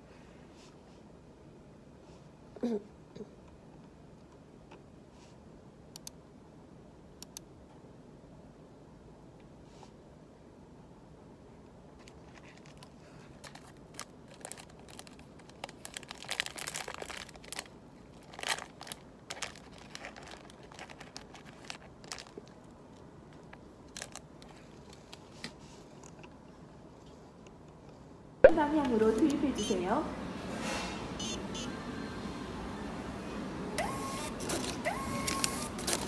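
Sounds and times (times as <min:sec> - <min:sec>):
plastic wrapper crinkling and tearing: 0:12.0 - 0:25.4, 0:34.5 - 0:36.0.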